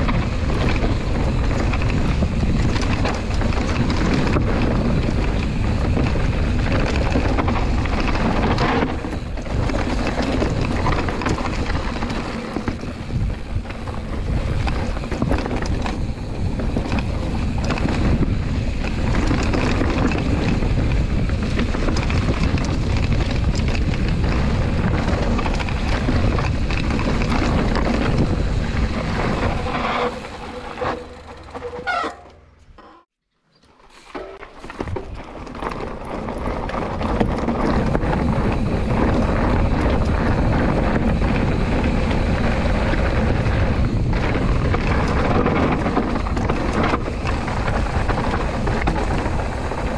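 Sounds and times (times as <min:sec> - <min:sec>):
wind buffeting microphone: 0:00.0 - 0:31.3, 0:34.8 - 0:49.9
bike rattling: 0:00.0 - 0:49.9.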